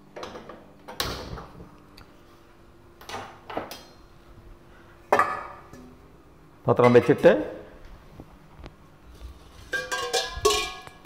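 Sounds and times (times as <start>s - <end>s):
kitchen vessel clattering: 9.6s - 11.0s.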